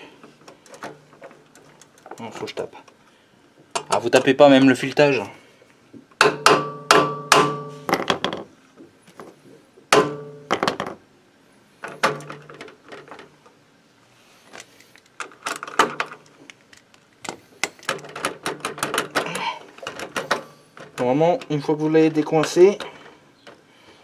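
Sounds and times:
hammer striking metal: 6.2 - 7.9, 9.9 - 10.6.

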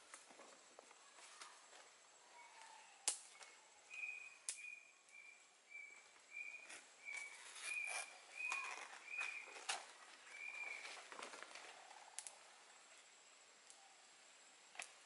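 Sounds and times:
leaf rustling and crackling: 0.0 - 13.1
sharp snap: 3.0 - 3.4.

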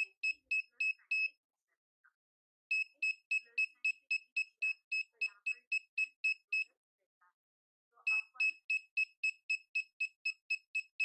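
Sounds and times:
buzzer beeping: 0.0 - 1.3, 2.7 - 6.7, 8.1 - 11.0.

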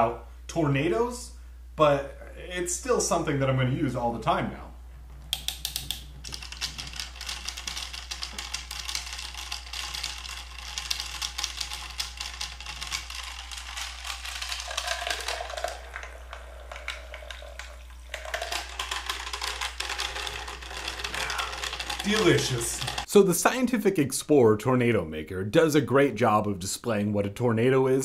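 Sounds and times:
ice rattling against plastic: 6.6 - 23.1
small motor spinning: 7.1 - 17.5, 18.2 - 23.1.

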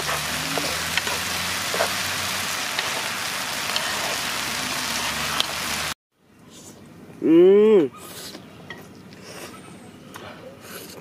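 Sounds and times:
food sizzling in oil: 0.0 - 6.0.

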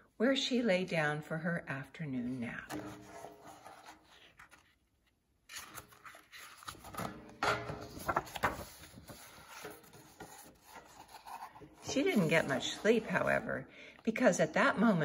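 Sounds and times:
book page rustling: 2.7 - 13.5.

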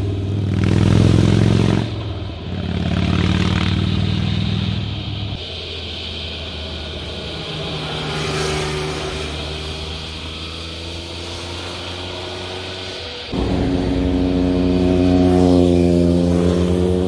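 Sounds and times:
motorcycle riding past: 7.2 - 17.0.

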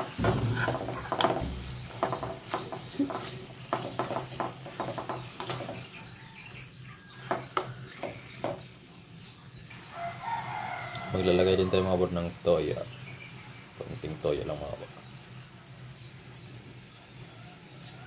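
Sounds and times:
metal spoon scraping a frying pan: 0.0 - 6.0
meat sizzling in butter: 0.0 - 18.0.

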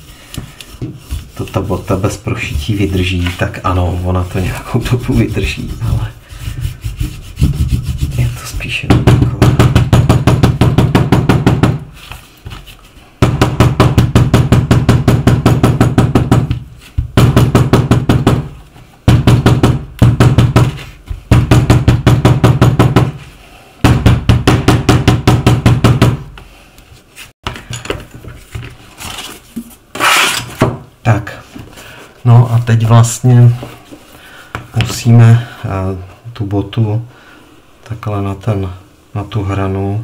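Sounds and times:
abrasive tool scraping leather: 29.9 - 30.6.

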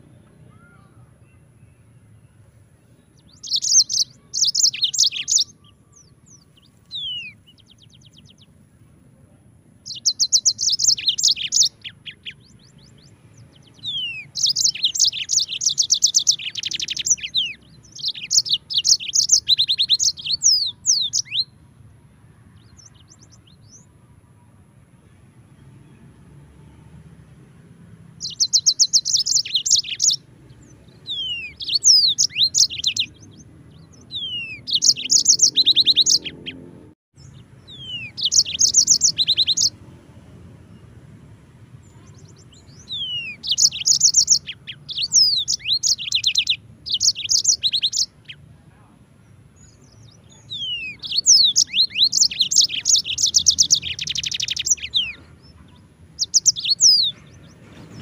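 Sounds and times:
canary trilling and whistling: 3.3 - 5.7, 6.9 - 8.4, 9.9 - 12.8, 13.6 - 21.5, 28.2 - 30.2, 31.0 - 36.6, 37.7 - 39.7, 42.2 - 48.4, 50.4 - 55.2, 56.2 - 57.2.

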